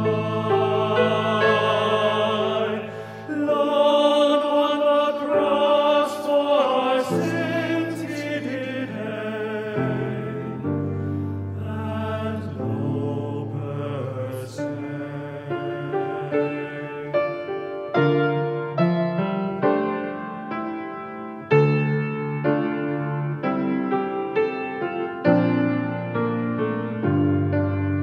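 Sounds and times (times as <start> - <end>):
men singing in harmony: 0.0 - 17.7.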